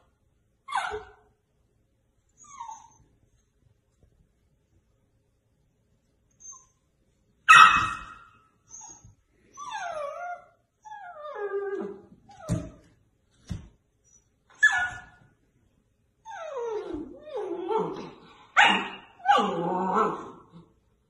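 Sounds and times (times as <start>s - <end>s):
puppy whining: 0.7s - 1.3s, 2.3s - 3.4s, 6.3s - 13.0s, 14.0s - 15.2s, 16.2s - 20.7s
puppy barking: 7.5s - 8.4s, 18.6s - 19.6s.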